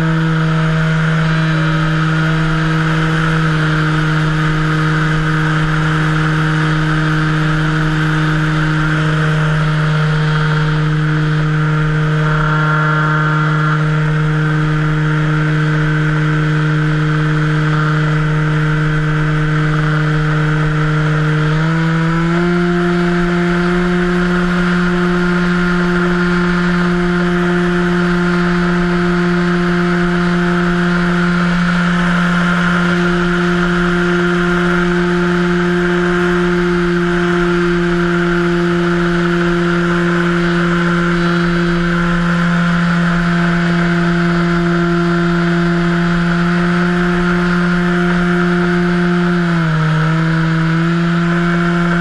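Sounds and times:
model plane motor droning: 0.0 - 52.0
air rushing past camera: 7.1 - 16.2.

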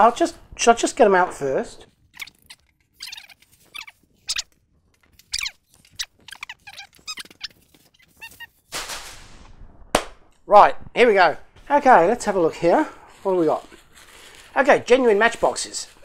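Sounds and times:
bubble wrap and paper rustling: 2.2 - 9.2, 11.8 - 16.0.

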